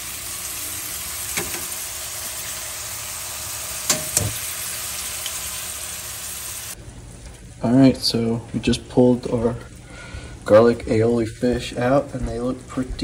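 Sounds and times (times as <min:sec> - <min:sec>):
butter sizzling in a frying pan: 0:00.0 - 0:06.8.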